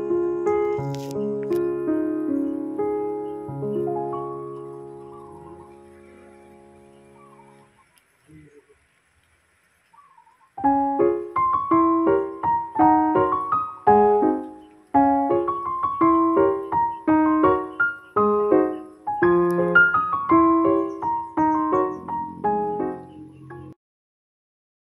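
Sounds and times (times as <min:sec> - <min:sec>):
solo piano music: 0:00.0 - 0:07.8, 0:10.4 - 0:23.8.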